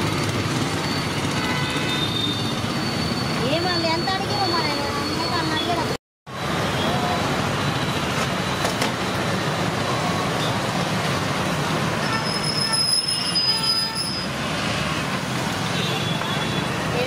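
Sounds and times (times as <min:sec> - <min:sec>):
roadside traffic noise: 0:00.0 - 0:17.0
high-pitched squeal: 0:12.2 - 0:14.4.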